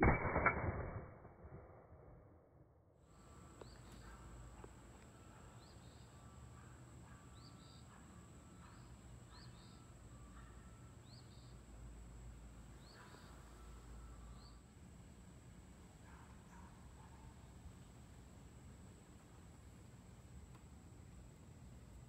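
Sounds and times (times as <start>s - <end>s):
bird chirping: 3.2s - 11.7s, 12.7s - 14.6s
steady high-pitched tone: 9.4s - 14.7s.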